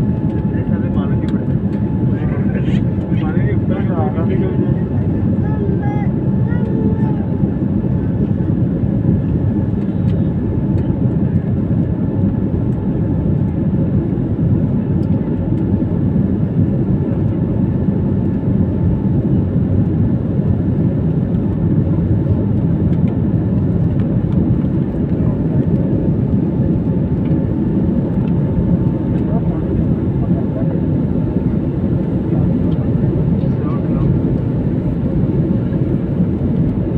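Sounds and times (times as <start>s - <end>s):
jet engines rumbling: 0.0s - 36.9s.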